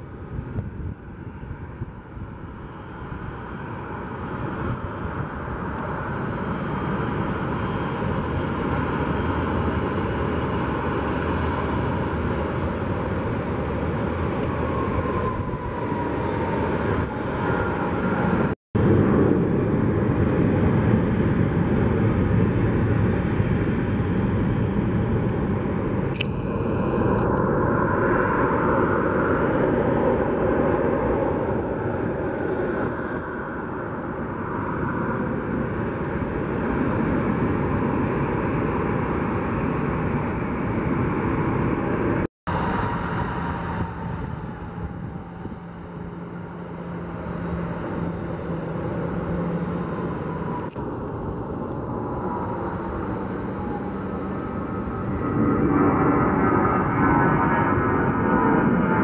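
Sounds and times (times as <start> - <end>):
jet engines roaring: 0.0 - 59.0
jet takeoff roll: 0.1 - 59.0
steady hum: 23.9 - 29.9, 35.2 - 56.9.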